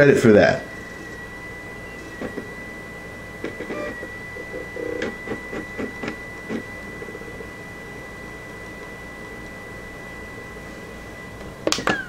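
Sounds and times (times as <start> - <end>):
disc drive high-pitched whine: 0.0 - 12.0.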